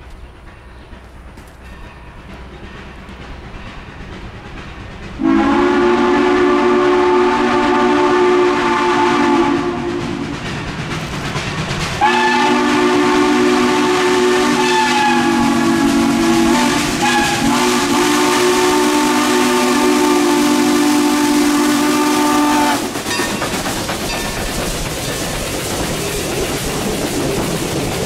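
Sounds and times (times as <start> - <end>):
train rumbling past: 0.0 - 28.0
steam whistle blasts: 5.2 - 10.3, 12.0 - 23.0.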